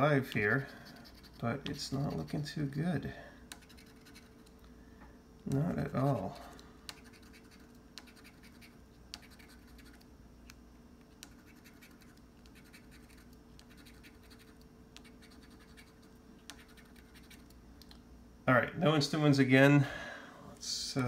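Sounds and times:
coin scratching lottery ticket: 0:00.6 - 0:02.6, 0:03.6 - 0:04.4, 0:07.0 - 0:10.0, 0:11.3 - 0:17.4.

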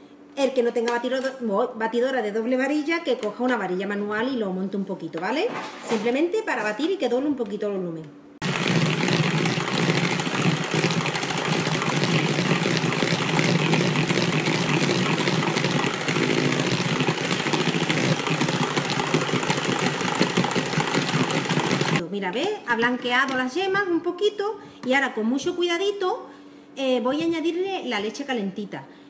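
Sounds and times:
electric hand mixer whisking: 0:08.4 - 0:22.0.

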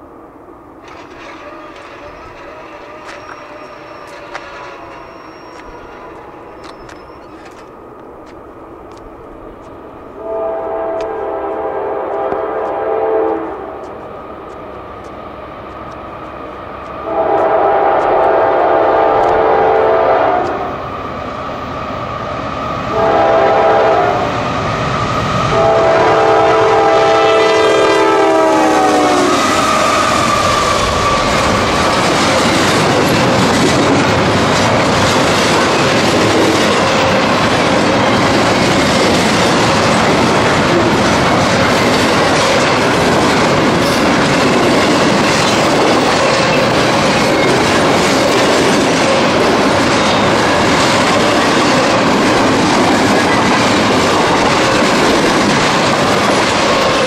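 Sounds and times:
locomotive air horn blasts: 0:10.2 - 0:13.8, 0:17.0 - 0:20.7, 0:22.9 - 0:24.4, 0:25.5 - 0:30.2
freight cars rumbling and clacking: 0:29.5 - 0:57.0.

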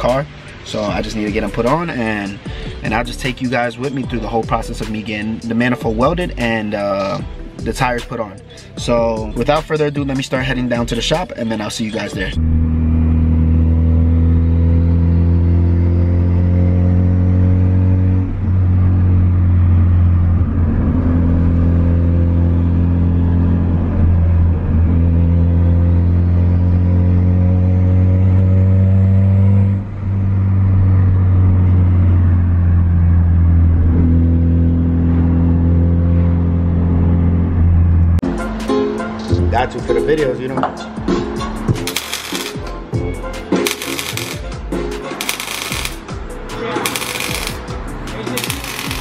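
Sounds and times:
car engine drone from inside cabin: 0:12.4 - 0:38.2.

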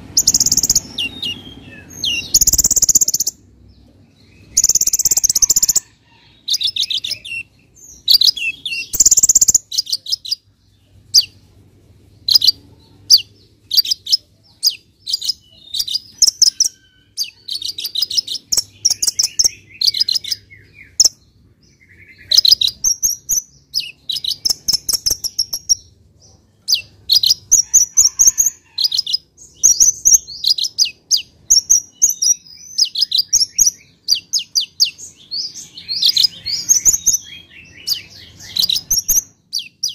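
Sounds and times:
harsh bird call: 0:00.0 - 0:03.4
bird twittering trills: 0:00.0 - 0:11.4, 0:12.2 - 0:39.9.

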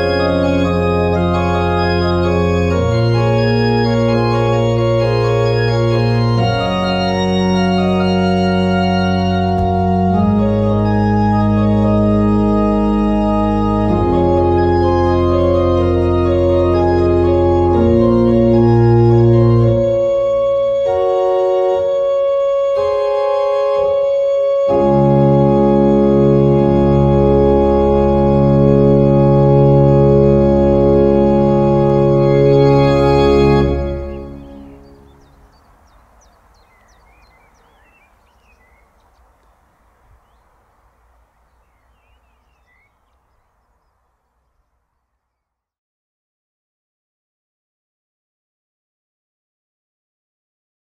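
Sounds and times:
church organ chords: 0:00.0 - 0:35.9.

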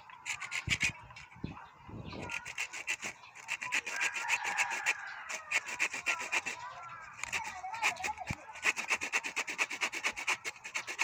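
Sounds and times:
small saw blade sawing: 0:00.0 - 0:01.2, 0:02.1 - 0:11.0.

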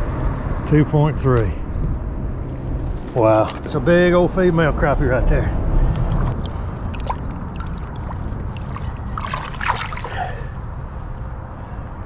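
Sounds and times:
low rumble: 0:00.0 - 0:11.6
water sloshing and splashing: 0:05.9 - 0:10.7.

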